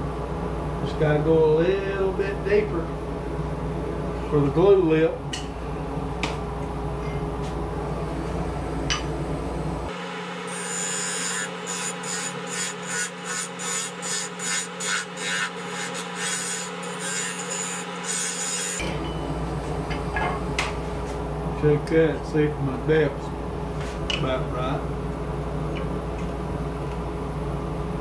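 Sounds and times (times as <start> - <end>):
wood lathe running: 9.9 - 18.8
turning tool scraping wood: 10.5 - 18.8.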